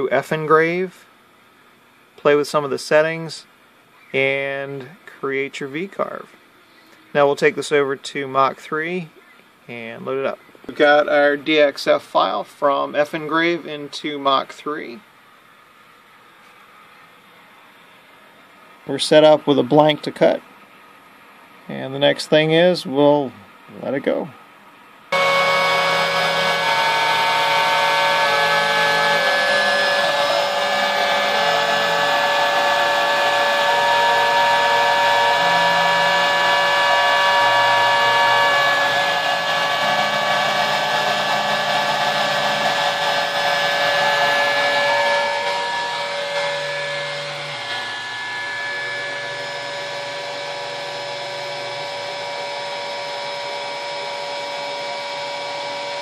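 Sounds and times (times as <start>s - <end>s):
router whining: 25.1s - 56.0s
stepper motors humming: 25.1s - 56.0s.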